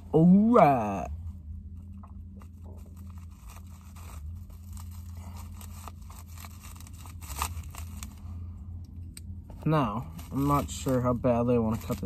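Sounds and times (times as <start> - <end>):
plastic wrap crinkling: 2.3 - 8.3, 9.7 - 12.0.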